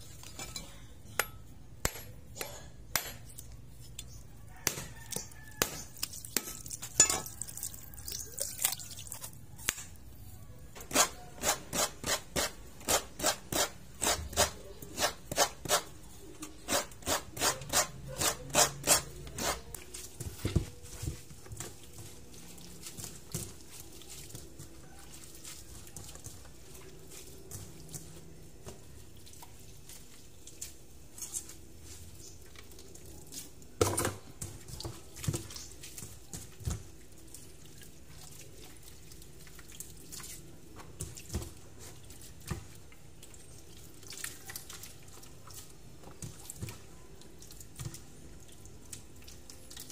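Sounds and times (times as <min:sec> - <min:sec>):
machete striking coconut: 0:01.2 - 0:03.3
hands squeezing wet coconut: 0:03.3 - 0:49.9
sharp grating strokes: 0:10.9 - 0:15.9, 0:16.6 - 0:19.8.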